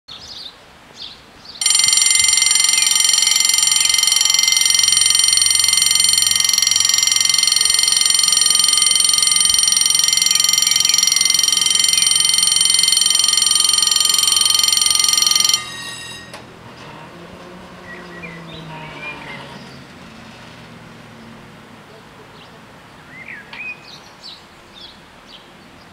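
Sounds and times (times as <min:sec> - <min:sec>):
level crossing warning bells: 0:01.6 - 0:16.8.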